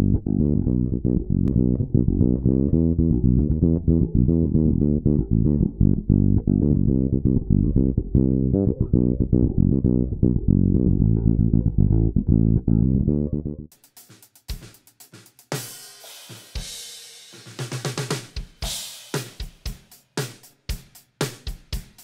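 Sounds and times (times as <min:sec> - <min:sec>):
electric bass guitar playing: 0:00.0 - 0:13.7
drum kit with snare and cymbals: 0:13.7 - 0:22.0.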